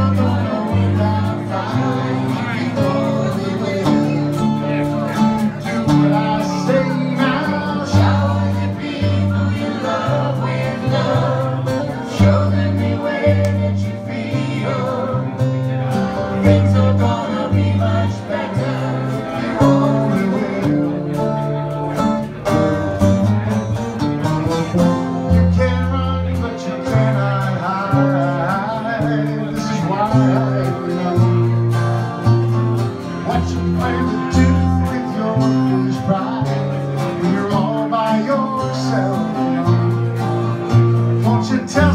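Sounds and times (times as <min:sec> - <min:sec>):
group singing: 0:00.0 - 0:04.8, 0:05.6 - 0:21.6, 0:33.2 - 0:39.7
bass line: 0:00.0 - 0:41.9
strummed acoustic guitar: 0:00.0 - 0:41.9.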